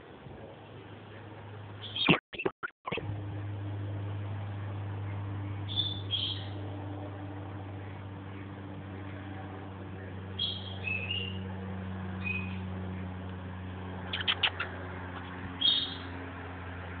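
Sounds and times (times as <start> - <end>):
steady low hum: 0.0 - 17.0
parrot chirping: 1.8 - 2.5, 14.1 - 16.1.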